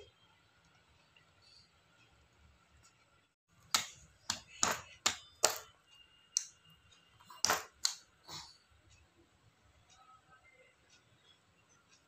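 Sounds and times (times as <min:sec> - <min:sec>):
baby tapping plastic toy tray: 0:03.7 - 0:05.7.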